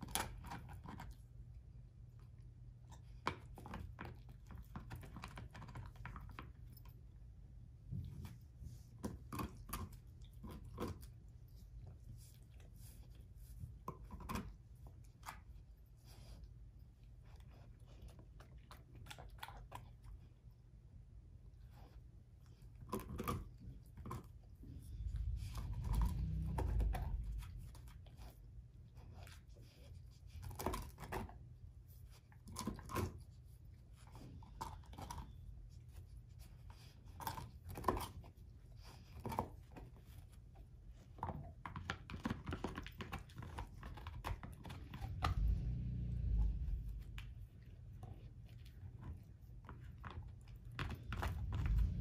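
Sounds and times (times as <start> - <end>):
dog gnawing a dried bone: 0.0 - 52.0
dog low rumble: 24.6 - 28.0, 44.8 - 48.2, 51.0 - 52.0.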